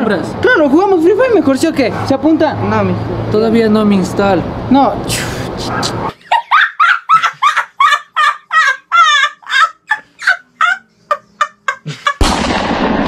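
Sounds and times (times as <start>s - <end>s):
boy laughing hard: 5.6s - 12.3s.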